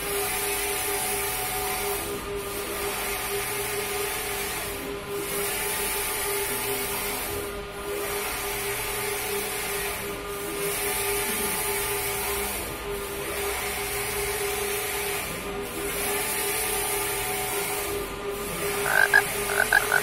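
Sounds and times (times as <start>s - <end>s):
inkjet printer humming: 18.5s - 20.0s.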